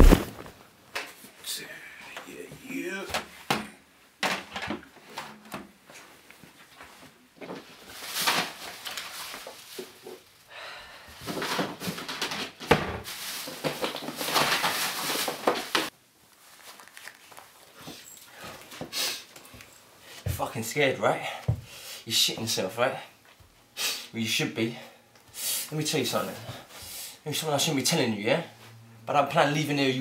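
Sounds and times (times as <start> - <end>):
plastic bin bag rustling: 0.0 - 0.6, 7.5 - 10.3, 11.2 - 18.8.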